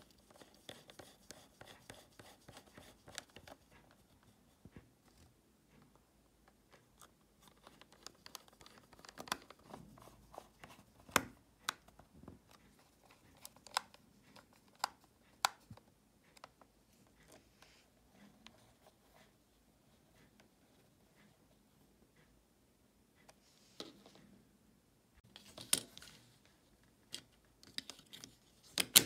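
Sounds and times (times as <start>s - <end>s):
plastic case being handled: 7.4s - 15.8s.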